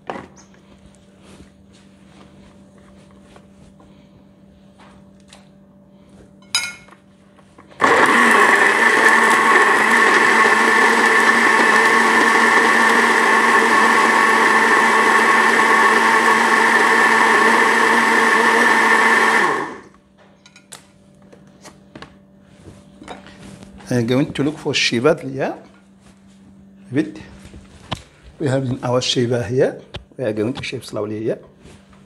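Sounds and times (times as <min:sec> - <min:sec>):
blender motor running: 0:07.8 - 0:20.0.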